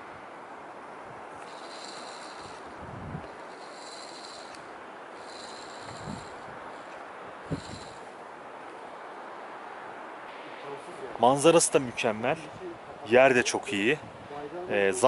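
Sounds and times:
low wind buffets: 0.0 - 15.0
wind on microphone: 1.1 - 4.6, 5.2 - 8.1.

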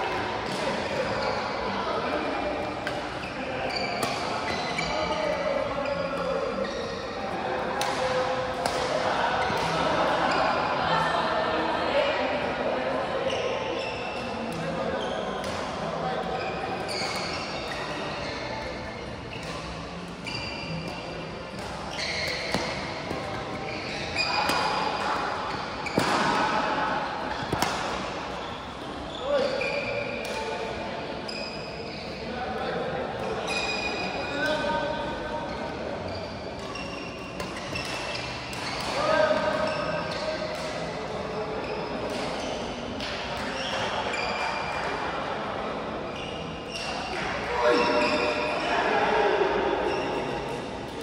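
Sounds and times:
indistinct echoing voices: 0.0 - 51.0
shoes squeaking on court floor: 0.4 - 7.2, 13.3 - 30.6, 31.2 - 32.3, 33.2 - 45.0, 46.1 - 51.0
racket hitting shuttlecock: 21.6 - 28.2.

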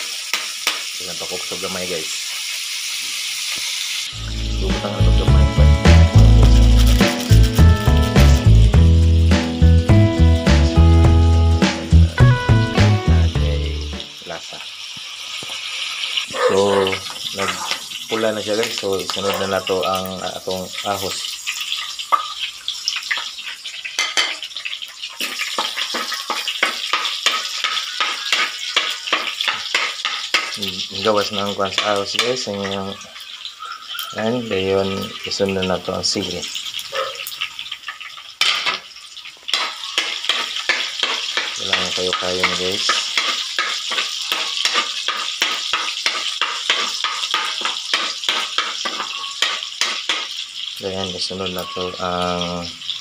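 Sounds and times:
garlic sizzling in oil: 0.0 - 53.0
metal spoon scraping pan: 39.5 - 50.3.

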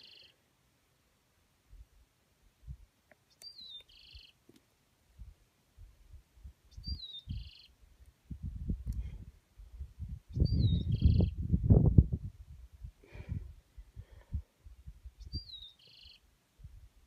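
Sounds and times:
bird calling: 3.3 - 4.4, 6.7 - 7.8, 15.4 - 16.2
thumps and rumbles on microphone: 8.3 - 12.6.

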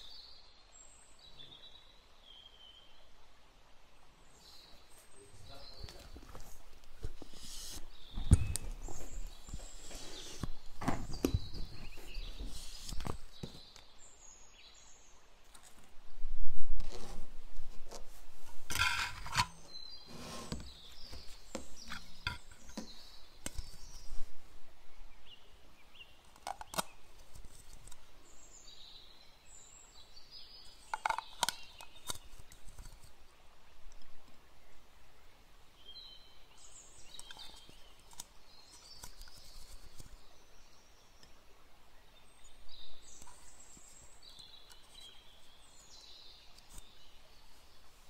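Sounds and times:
plastic cups handled: 5.7 - 13.8, 16.8 - 24.1, 26.3 - 28.0, 30.9 - 33.2, 37.0 - 40.2.

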